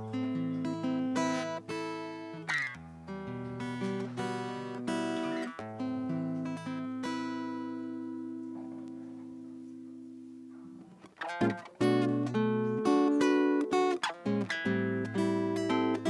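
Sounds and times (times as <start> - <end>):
acoustic guitar chords: 0.0 - 16.0.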